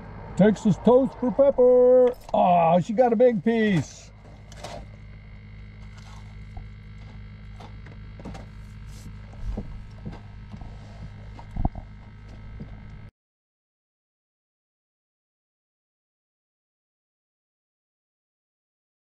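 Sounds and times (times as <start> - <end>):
aerator pump buzzing: 0.0 - 13.1.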